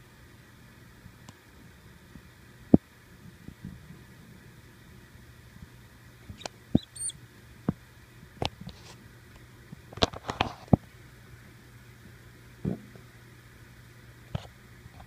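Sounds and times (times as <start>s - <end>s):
mouse squeaking: 6.4s - 7.2s.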